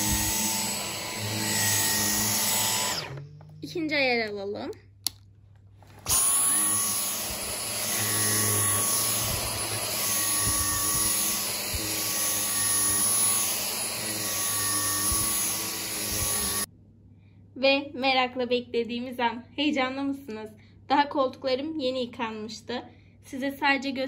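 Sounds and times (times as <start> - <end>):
vacuum cleaner switching off: 0.0 - 3.3, 6.0 - 16.7
vacuum cleaner running: 0.0 - 3.4, 5.9 - 16.7.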